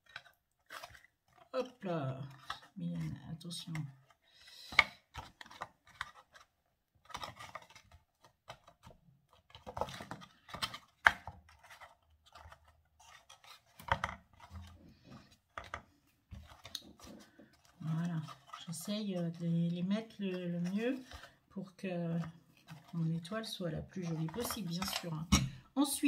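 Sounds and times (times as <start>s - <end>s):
cardboard boxes tapping and scraping: 7.1s - 15.8s.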